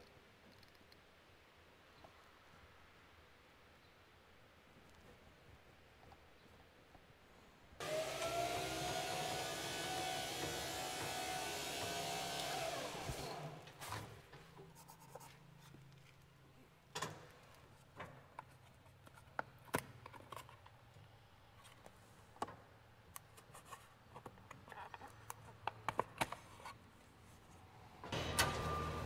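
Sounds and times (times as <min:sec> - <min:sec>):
motor whining: 0:07.8 - 0:13.7, 0:28.1 - 0:29.0.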